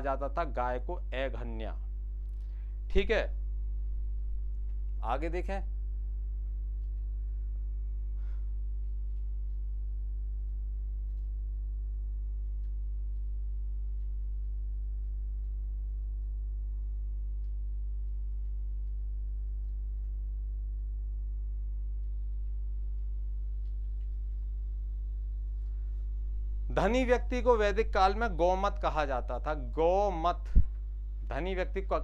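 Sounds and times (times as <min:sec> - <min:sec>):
mains hum: 0:00.0 - 0:32.0
faint clicks: 0:11.0 - 0:11.4.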